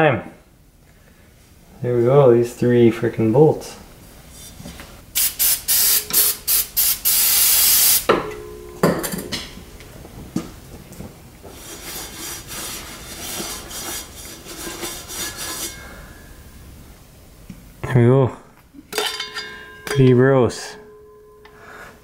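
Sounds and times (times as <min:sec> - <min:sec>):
metal clunk: 0:08.1 - 0:09.6, 0:18.9 - 0:21.6
rag scrubbing metal housing: 0:11.7 - 0:16.2.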